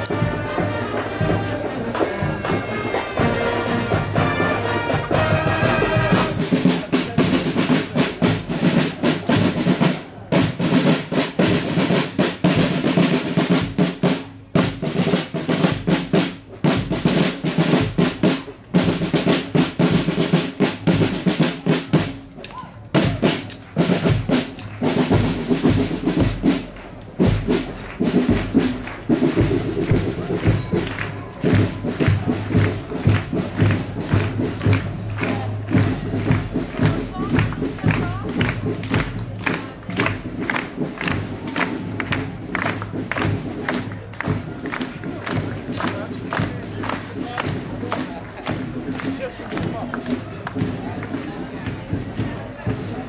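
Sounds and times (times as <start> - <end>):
snare drum cadence: 0.0 - 45.5.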